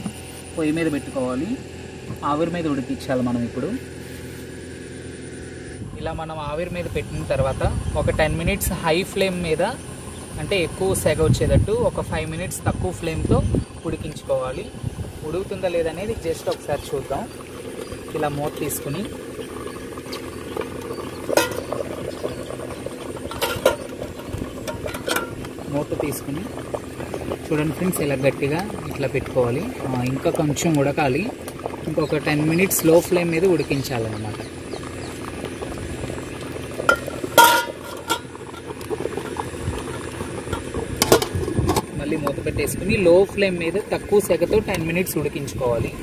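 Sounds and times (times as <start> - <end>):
water bubbling in a steamer: 6.2 - 46.0
steel lid clinking: 21.3 - 22.0, 23.2 - 25.6, 36.9 - 41.9
metal lid clinks: 36.9 - 38.3.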